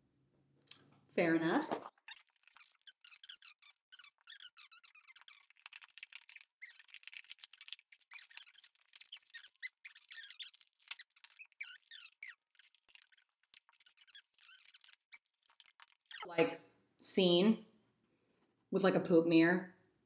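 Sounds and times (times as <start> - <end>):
short squeaks: 1.8 - 16.3.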